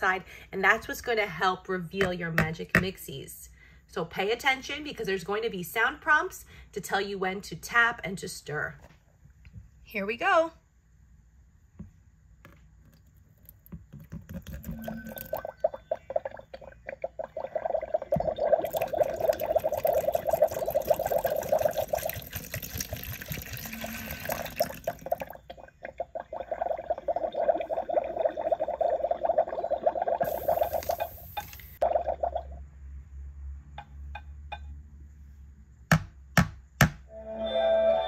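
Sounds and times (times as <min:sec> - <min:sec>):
water pouring into plastic toy: 0:13.4 - 0:25.4, 0:26.3 - 0:32.3.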